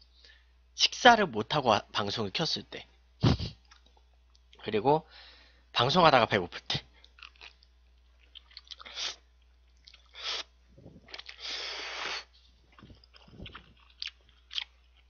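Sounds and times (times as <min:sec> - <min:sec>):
chewing mouth smacks: 0:07.0 - 0:10.2, 0:12.6 - 0:15.0
man slurping noodles: 0:10.1 - 0:13.6.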